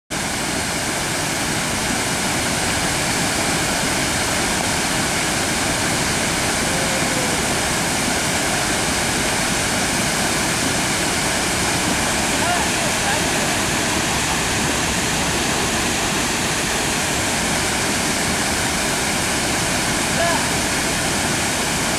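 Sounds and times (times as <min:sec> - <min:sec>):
waterfall rushing: 0:00.1 - 0:21.9.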